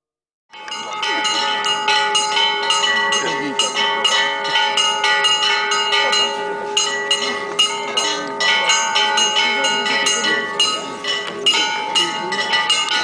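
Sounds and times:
church bells ringing: 0:00.5 - 0:13.0.

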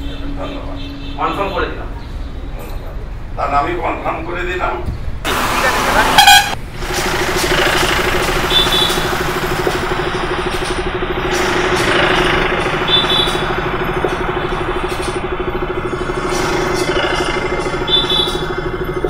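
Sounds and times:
motorcycle engine idling: 0:05.6 - 0:19.0.

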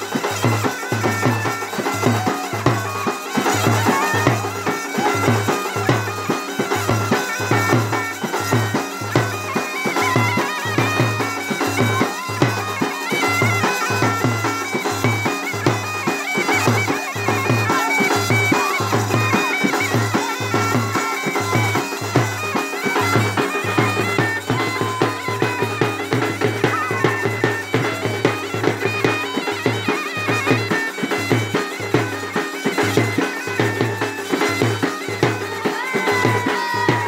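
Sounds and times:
bagpipes playing folk melody: 0:00.0 - 0:37.0
hand drum: 0:00.0 - 0:37.0.

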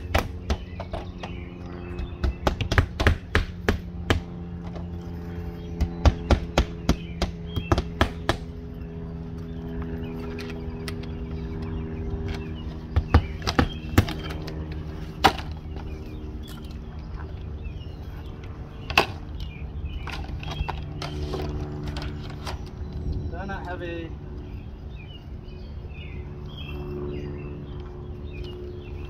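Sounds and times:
low mechanical hum: 0:00.0 - 0:29.0.

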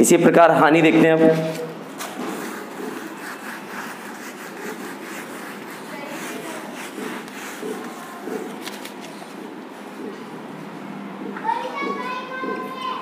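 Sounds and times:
whiteboard being wiped: 0:02.0 - 0:09.1.

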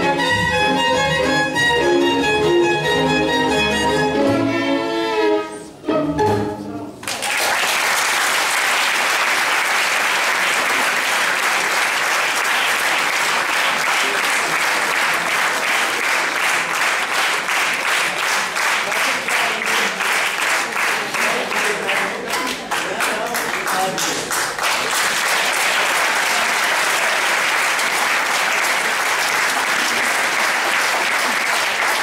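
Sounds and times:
string orchestra playing: 0:00.0 - 0:07.0
audience applause: 0:07.0 - 0:32.0.

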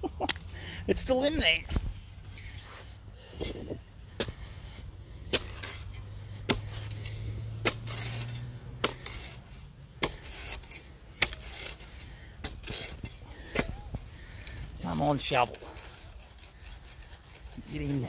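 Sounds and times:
spade scraping soil: 0:00.3 - 0:18.0
spade chopping into soil: 0:03.4 - 0:04.6, 0:05.2 - 0:14.1.

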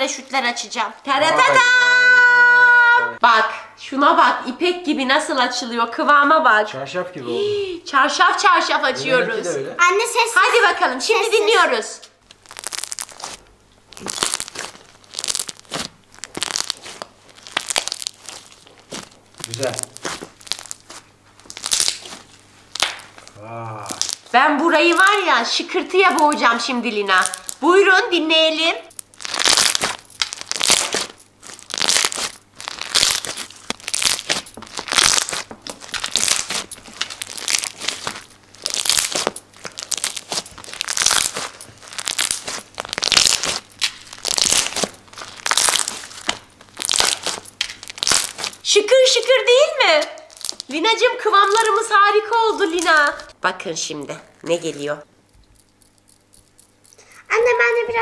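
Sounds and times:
slime crackling and popping: 0:12.2 - 0:27.8, 0:28.9 - 0:53.4, 0:54.1 - 0:57.8.

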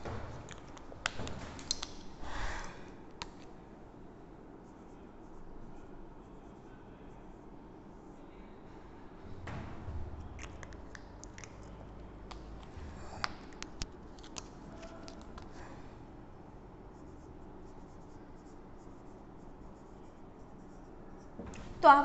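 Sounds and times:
marker pen scratching on whiteboard: 0:16.9 - 0:21.5.

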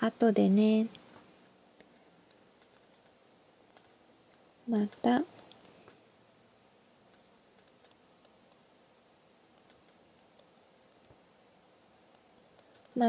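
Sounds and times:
computer mouse clicks: 0:01.8 - 0:06.0, 0:07.1 - 0:08.6, 0:09.6 - 0:13.0.

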